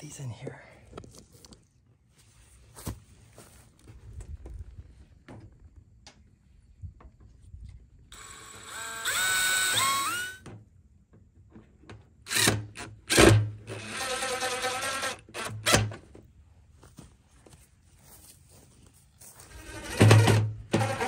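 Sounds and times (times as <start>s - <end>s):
power drill driving screws: 8.1s - 10.5s, 12.3s - 16.0s, 19.5s - 21.0s.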